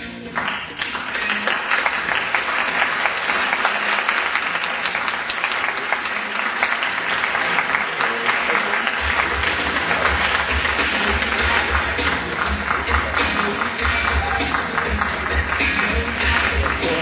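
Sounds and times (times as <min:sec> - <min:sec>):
music playing: 0:00.0 - 0:17.0
audience clapping: 0:00.2 - 0:17.0
low bass beat: 0:09.0 - 0:17.0.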